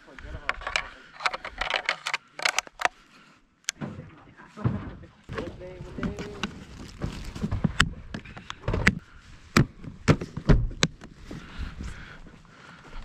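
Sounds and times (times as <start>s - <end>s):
plastic case latches clicking: 0.6s - 2.9s
dry grass rustling: 5.2s - 9.8s.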